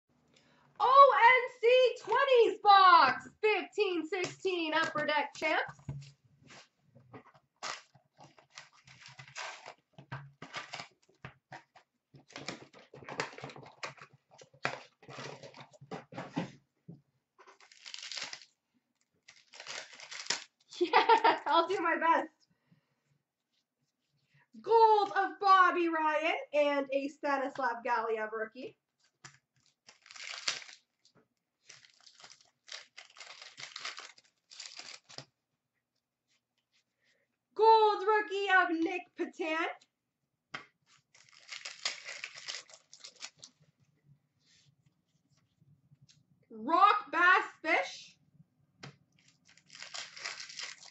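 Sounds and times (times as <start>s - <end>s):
rustling and scraping cardboard: 5.8s - 16.6s
paper wrappers tearing: 7.6s - 14.0s, 17.6s - 18.5s, 19.2s - 21.2s, 29.6s - 35.3s, 40.9s - 43.6s, 49.2s - 50.9s.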